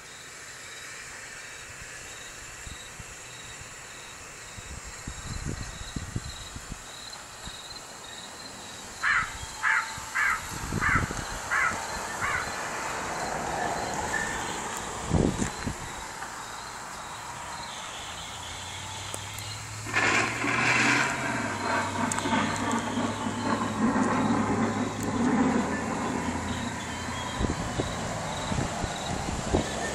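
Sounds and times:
harsh crow-like caws: 0:09.0 - 0:12.8
loud rumbling with low hum: 0:19.7 - 0:29.9.

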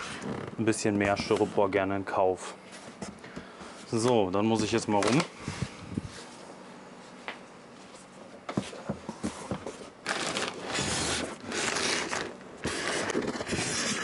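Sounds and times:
cardboard and styrofoam scraping: 0:09.7 - 0:14.0.

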